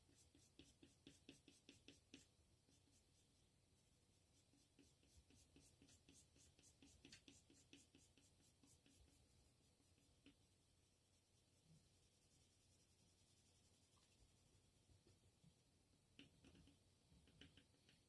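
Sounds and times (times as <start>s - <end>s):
colored pencil scratching on paper: 0.0s - 3.5s, 4.1s - 10.4s, 11.0s - 14.4s.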